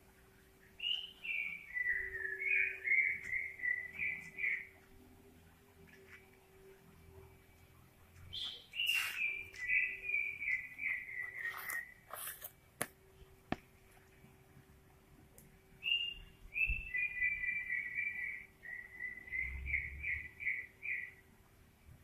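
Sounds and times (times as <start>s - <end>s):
faint steady hum: 0.0s - 22.0s
whistled notes: 1.3s - 4.7s.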